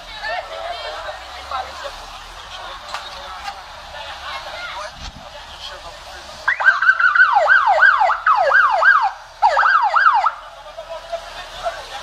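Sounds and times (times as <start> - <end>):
police siren yelping: 6.5 - 10.4.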